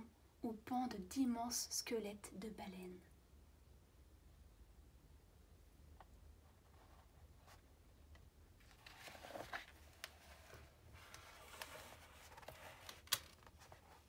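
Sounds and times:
book page turning: 8.6s - 14.0s.

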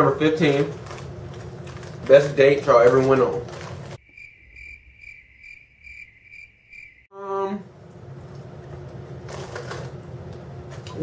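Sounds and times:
cricket chirping: 4.0s - 7.1s.

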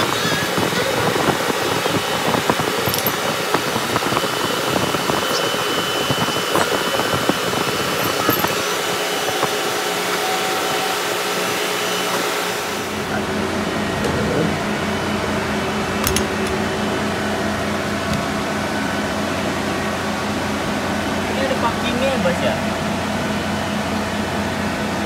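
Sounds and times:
machinery humming: 0.0s - 25.0s
metallic clicks and knocks: 2.9s - 3.2s, 8.0s - 8.6s, 16.0s - 16.6s.

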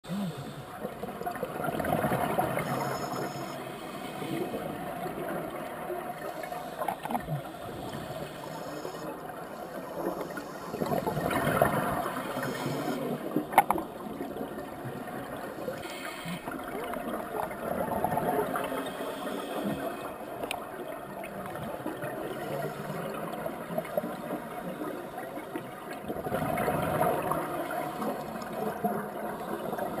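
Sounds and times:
underwater bubbling and gurgling: 0.1s - 30.0s.

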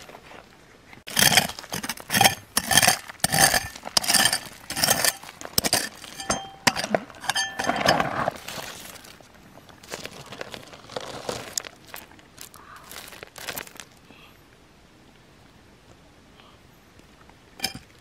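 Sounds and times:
hard objects clinking and scraping: 1.1s - 9.1s, 17.6s - 18.0s.

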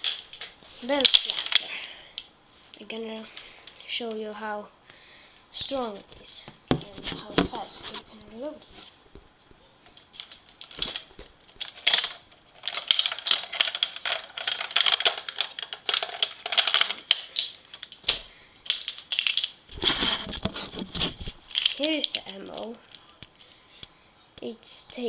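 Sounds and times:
small plastic clicks and rattles: 9.8s - 19.6s.

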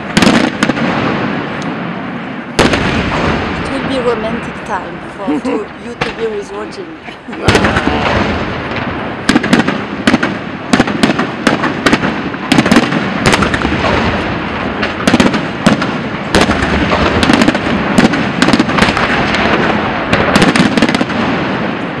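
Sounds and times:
fireworks crackling: 0.0s - 22.0s.

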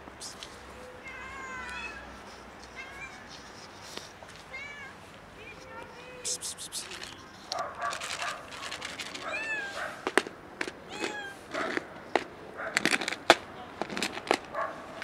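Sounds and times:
cats meowing: 0.0s - 10.2s, 10.8s - 11.8s
sharp clicks: 6.3s - 7.6s.

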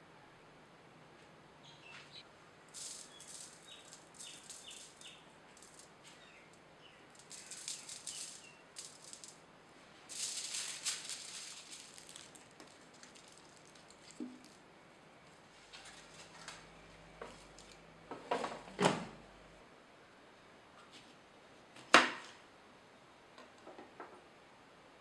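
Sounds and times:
salt shaker rattling: 2.7s - 6.5s, 7.1s - 9.4s, 10.1s - 14.6s
granules pattering on foil: 2.7s - 9.4s, 10.1s - 14.6s.

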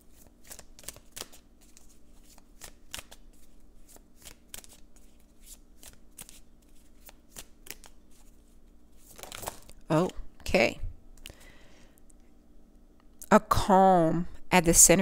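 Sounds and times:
cards being shuffled: 0.1s - 10.2s.

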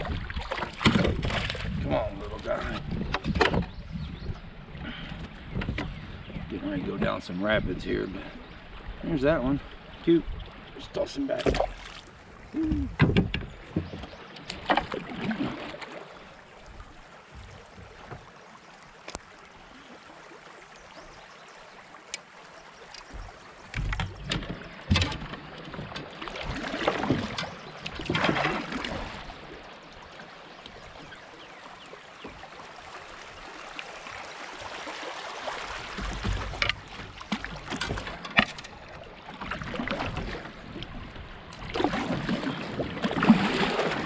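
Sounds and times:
paddle splashes: 0.0s - 44.0s
running water: 0.0s - 44.0s
sharp knocks: 12.7s - 14.0s.

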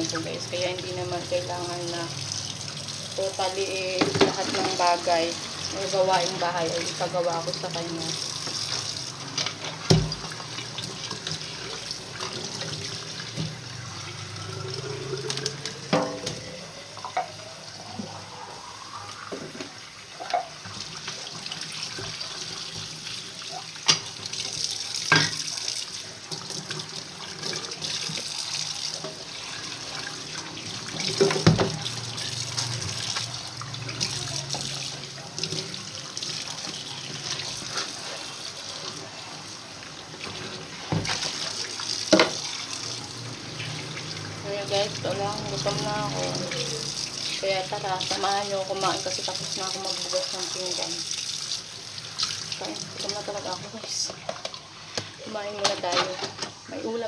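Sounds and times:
tap water running into sink: 0.0s - 56.9s
dishes clinking: 15.9s - 17.4s, 25.1s - 25.5s.

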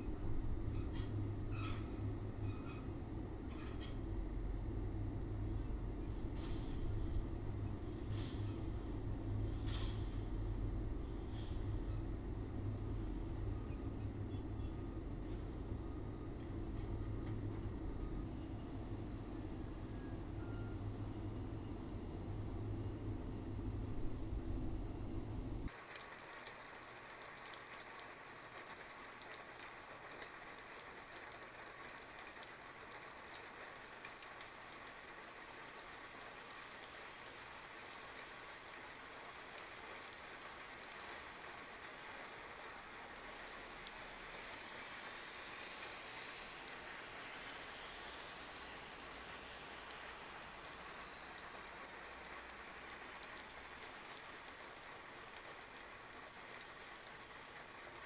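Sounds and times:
rain falling on wet pavement: 25.7s - 58.0s.

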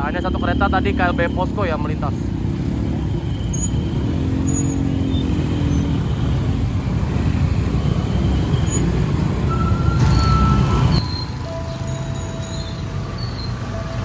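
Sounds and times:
motorcycle engines revving: 0.0s - 14.0s.

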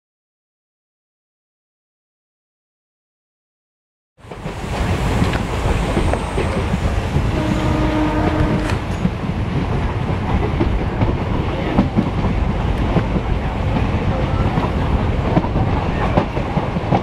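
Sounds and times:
train wheels rumbling: 4.2s - 17.0s
train horn tone: 7.2s - 9.1s.

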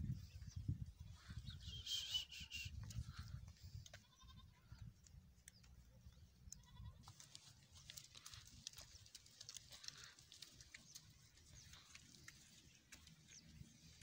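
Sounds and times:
sheep bleating: 4.0s - 4.6s, 6.6s - 7.1s.

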